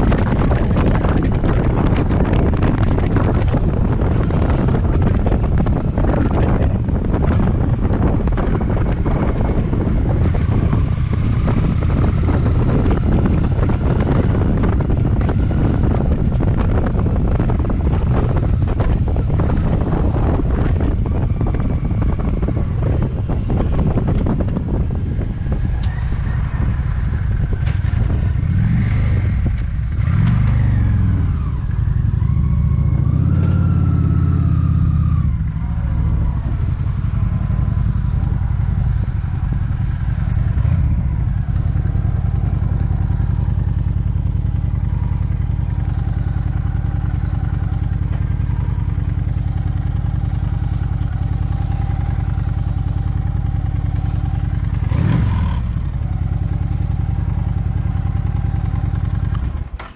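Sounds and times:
motorcycle engine revving: 0.0 - 59.9
wind buffeting microphone: 0.0 - 59.9.

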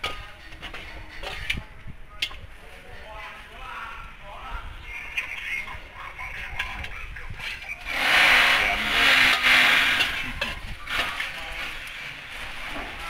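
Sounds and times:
metal spatula scraping a wok: 0.0 - 1.6, 7.8 - 13.0.

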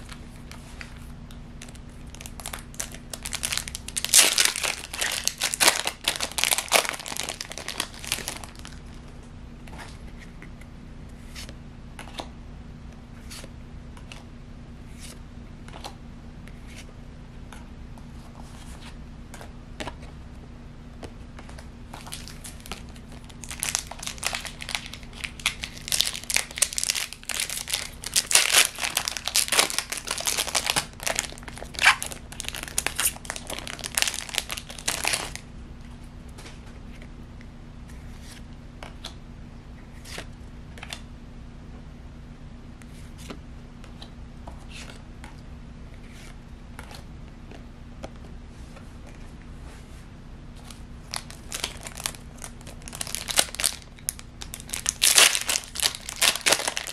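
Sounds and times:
foil wrapper crinkling and tearing: 1.6 - 8.8, 22.0 - 35.4, 51.1 - 56.9.

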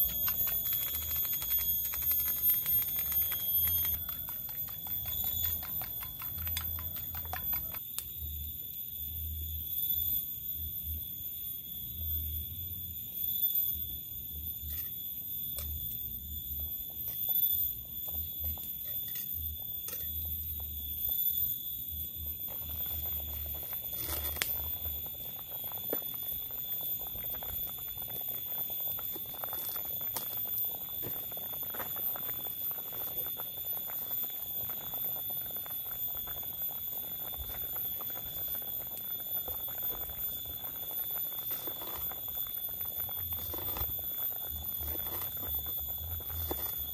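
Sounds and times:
wood fire crackling: 0.0 - 7.8, 21.9 - 46.9
water boiling in a pot: 0.0 - 46.9.

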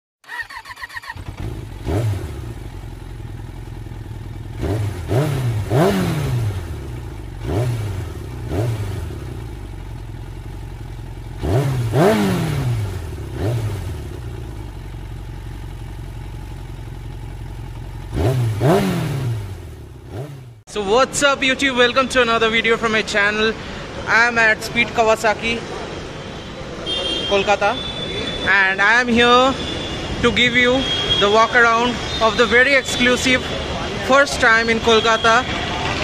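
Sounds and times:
motorcycle engine revving: 0.2 - 20.7.

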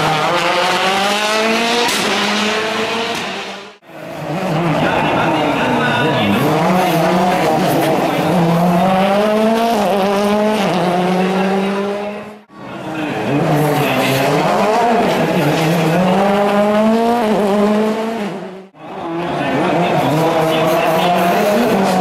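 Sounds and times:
rally car engines accelerating: 0.0 - 22.0.

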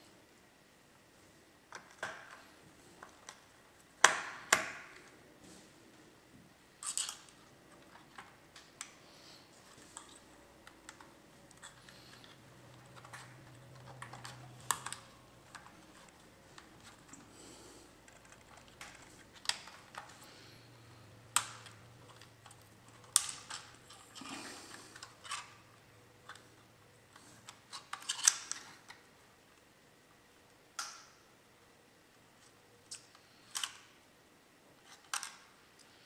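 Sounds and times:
small parts clicking and tapping: 6.8 - 29.7, 30.5 - 31.2, 32.4 - 34.0, 34.8 - 36.0.

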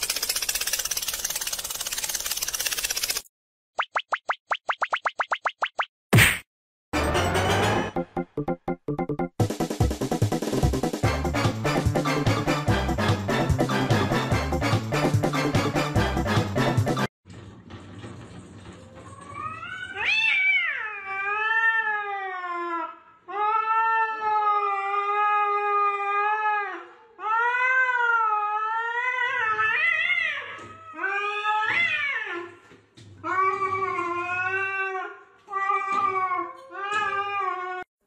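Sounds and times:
cats yowling: 19.3 - 22.4.

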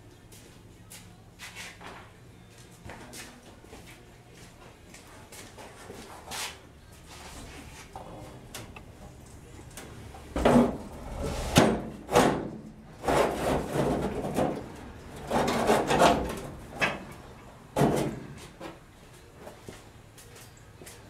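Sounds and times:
metal panel scraping and knocking: 10.4 - 16.5.

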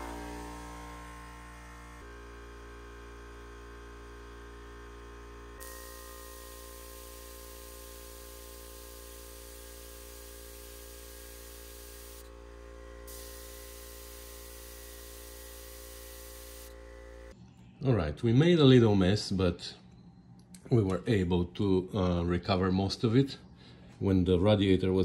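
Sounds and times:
steady hum: 0.0 - 17.4
fluid extractor hissing: 5.6 - 12.4, 13.0 - 17.3.

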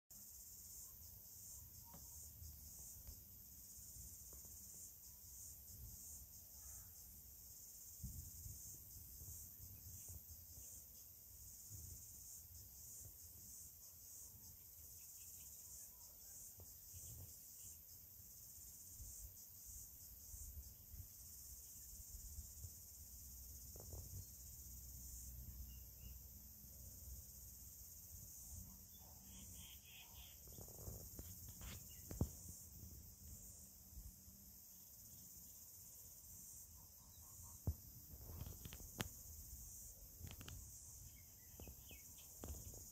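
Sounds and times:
faint high-pitched hiss: 0.1 - 42.9
tiny ticks: 38.3 - 39.2, 40.2 - 40.7.

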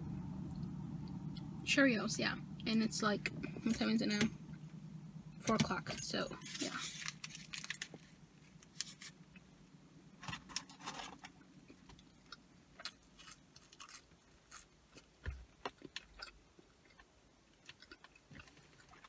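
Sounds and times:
chewing food: 11.3 - 19.0.

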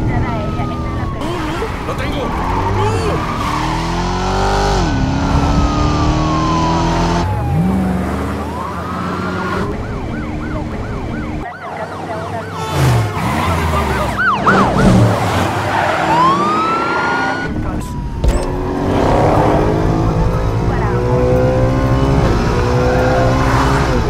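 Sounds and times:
police sirens yelping and wailing: 0.0 - 24.0
speeding car engines revving: 0.0 - 24.0.

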